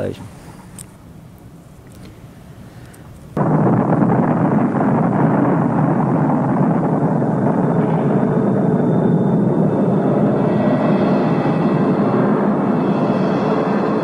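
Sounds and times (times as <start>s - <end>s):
explosion roar: 3.4s - 14.0s.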